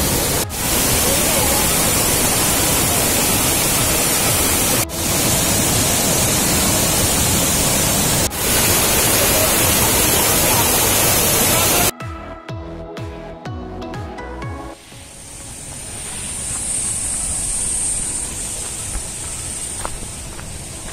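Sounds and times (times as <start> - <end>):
waterfall pouring onto rocks: 0.0 - 11.9.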